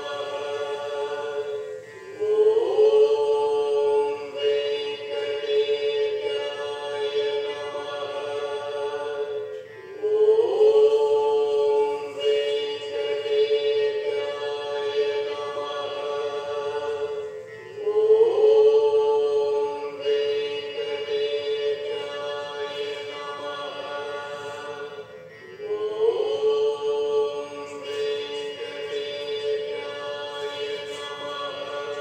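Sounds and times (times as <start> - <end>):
devotional mantra chanting: 0.0 - 32.0.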